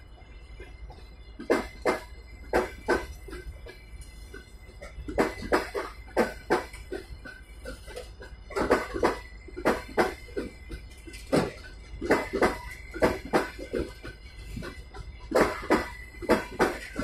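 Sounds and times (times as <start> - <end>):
train wheels clattering over rail joints: 0.0 - 17.0.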